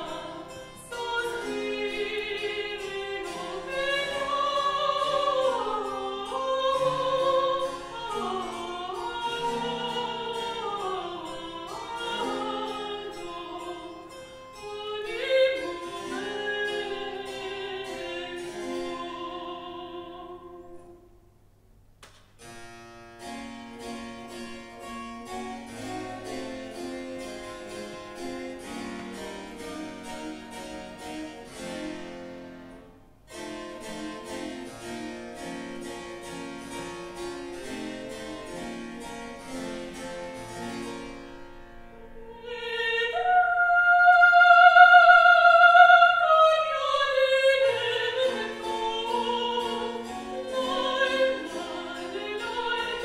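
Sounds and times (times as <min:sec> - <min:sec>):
countertenor singing: 0:00.0 - 0:14.1, 0:42.2 - 0:53.0
harpsichord playing: 0:00.0 - 0:20.6, 0:22.4 - 0:43.0, 0:43.8 - 0:53.0.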